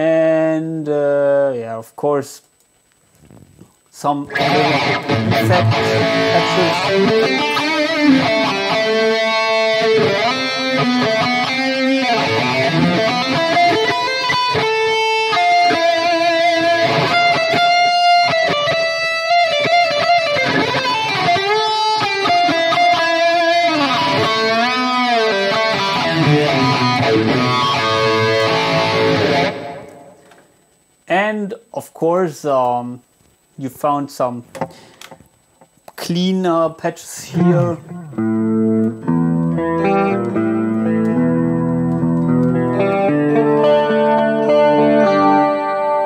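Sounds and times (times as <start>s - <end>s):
electric guitar playing: 4.3s - 30.4s, 37.3s - 46.0s.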